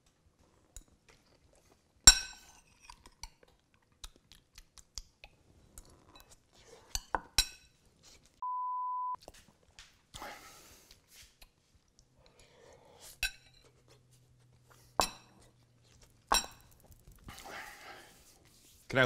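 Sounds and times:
faint chewing: 0:00.0 - 0:08.4, 0:09.2 - 0:18.6
electronic bleep: 0:08.4 - 0:09.2.

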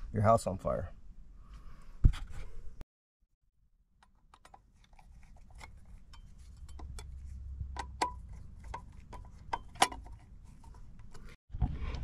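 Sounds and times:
screwdriver scraping metal box: 0:04.4 - 0:11.4.

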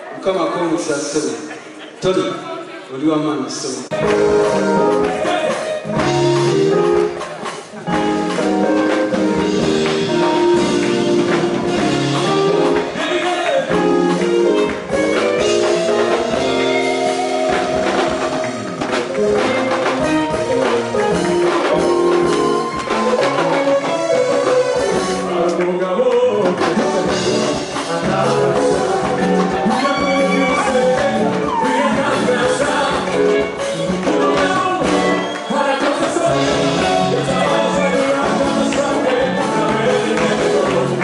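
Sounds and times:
drum beat: 0:03.9 - 0:25.6, 0:26.3 - 0:41.0
electric guitar: 0:03.9 - 0:41.0
group singing: 0:12.2 - 0:21.3, 0:22.9 - 0:41.0.

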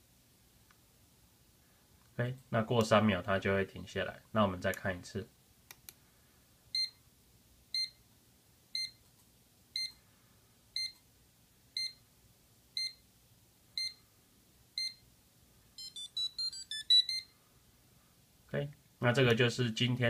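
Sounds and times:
timer buzzer beeping: 0:15.8 - 0:17.3.

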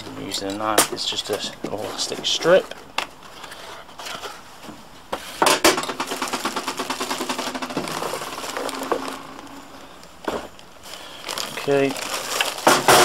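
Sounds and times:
pulp trays knocking: 0:05.5 - 0:09.5
plastic bag crinkling: 0:05.8 - 0:12.8.

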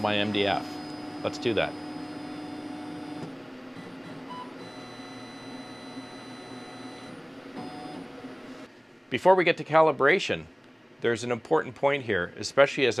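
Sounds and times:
laser engraver motor hum and whine: 0:00.0 - 0:08.7.

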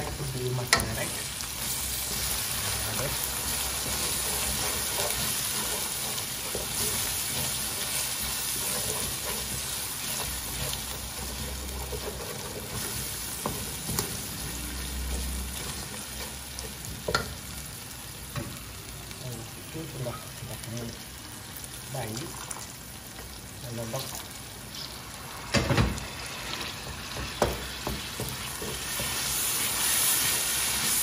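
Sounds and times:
wooden spoon stirring in pot: 0:00.0 - 0:17.3, 0:26.4 - 0:31.0
onions sizzling in hot oil: 0:00.0 - 0:31.0.

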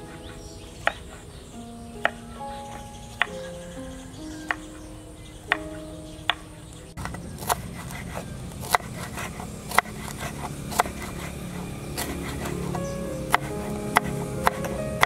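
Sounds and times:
soft background music: 0:00.0 - 0:15.0
knife chopping on wooden board: 0:07.0 - 0:11.4.

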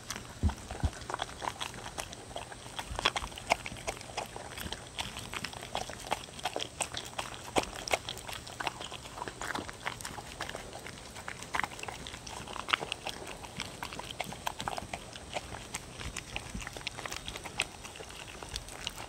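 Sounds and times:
dogs chewing and smacking: 0:00.0 - 0:19.0.

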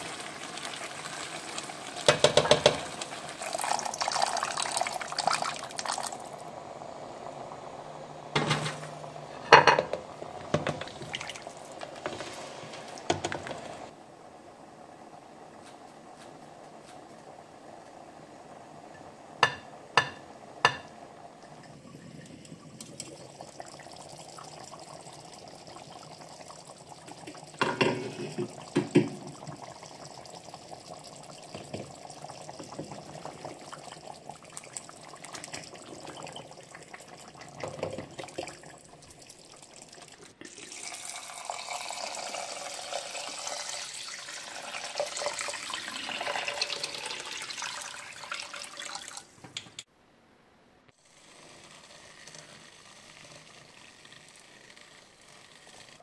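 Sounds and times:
rice boiling hard: 0:00.0 - 0:49.4, 0:51.0 - 0:56.0
stew simmering: 0:00.0 - 0:49.8, 0:51.0 - 0:56.0
spatula knocking on pot: 0:02.1 - 0:02.9, 0:19.4 - 0:20.9.

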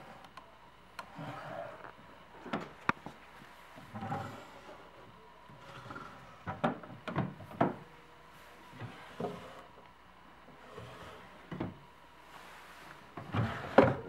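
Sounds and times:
wooden drawer sliding open: 0:13.2 - 0:14.0.

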